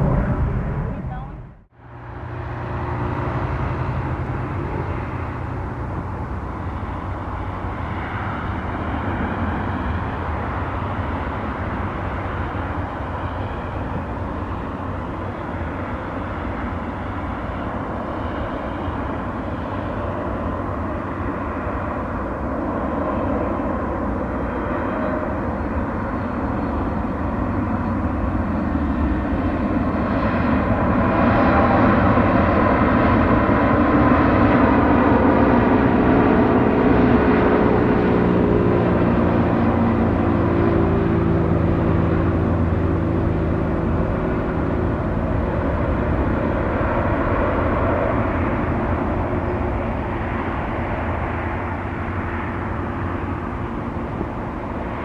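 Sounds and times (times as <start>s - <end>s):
faint high engine whine: 0.0s - 55.0s
jet airliner rumble: 0.0s - 55.0s.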